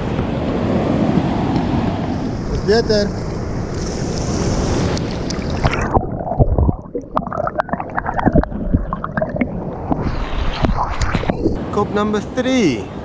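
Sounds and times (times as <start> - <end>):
surf: 0.0 - 13.0
wind buffeting microphone: 8.0 - 11.8.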